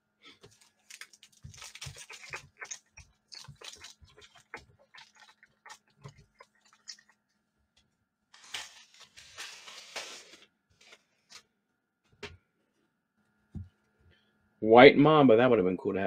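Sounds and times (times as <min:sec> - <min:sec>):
wrapper rustle: 0:00.4 - 0:07.0, 0:08.3 - 0:11.0
foil wrapper crinkling: 0:00.4 - 0:07.1, 0:08.3 - 0:11.0.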